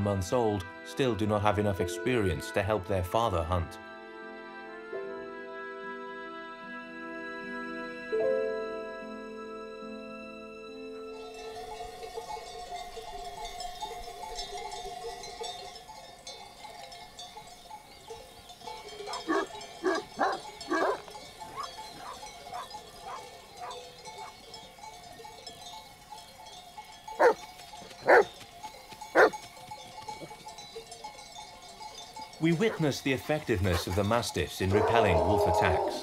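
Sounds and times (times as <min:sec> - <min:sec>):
sheep bells ringing: 0:11.1 - 0:36.0
dogs barking: 0:19.0 - 0:24.4, 0:27.2 - 0:27.4, 0:28.0 - 0:28.4, 0:29.1 - 0:29.4, 0:32.6 - 0:32.9, 0:33.6 - 0:34.1, 0:34.7 - 0:36.0.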